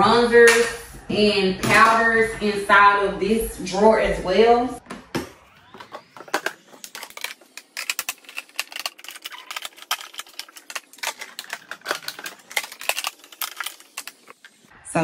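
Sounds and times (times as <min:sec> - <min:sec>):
compacts clattering together: 0:05.8 - 0:14.6.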